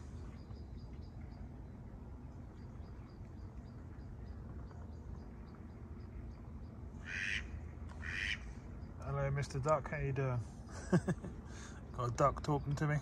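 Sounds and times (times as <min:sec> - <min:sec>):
low steady rumble: 0:00.0 - 0:13.0
duck quacking: 0:07.0 - 0:08.4.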